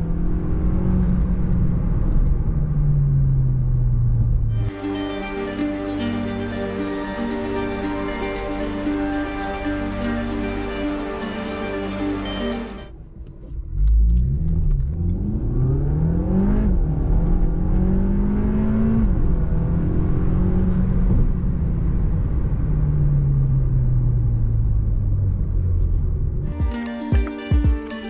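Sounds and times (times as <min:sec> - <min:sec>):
car engine at full throttle: 0:00.0 - 0:04.8, 0:13.0 - 0:26.5.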